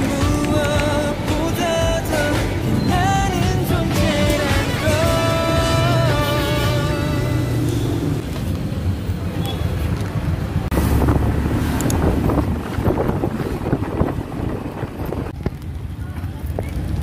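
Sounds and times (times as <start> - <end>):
wind buffeting microphone: 10.6 - 17.0.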